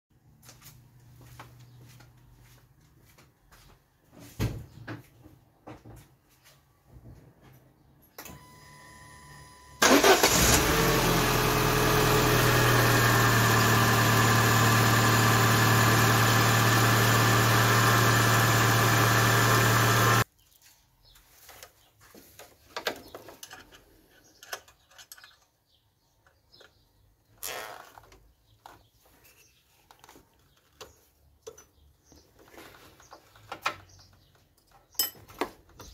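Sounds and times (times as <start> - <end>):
car engine cranking and starting: 9.8 - 20.2
car engine idling: 9.8 - 20.2
faint clicks and handling noises: 28.0 - 35.9.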